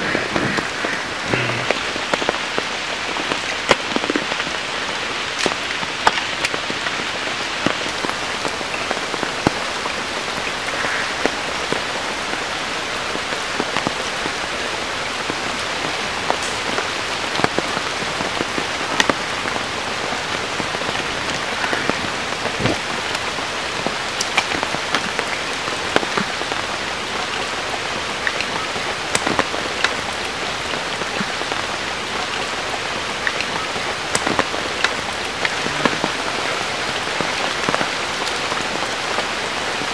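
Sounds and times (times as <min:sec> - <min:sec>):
rain on shallow water and mud: 0:00.0 - 0:39.9.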